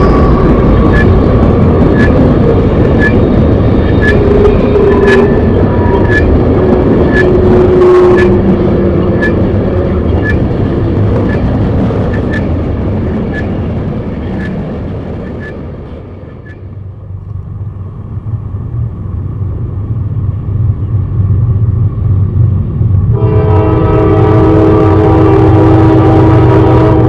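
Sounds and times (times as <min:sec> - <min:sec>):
diesel locomotive rumble: 0:00.0 - 0:27.0
locomotive air horn: 0:07.2 - 0:08.5, 0:23.1 - 0:27.0.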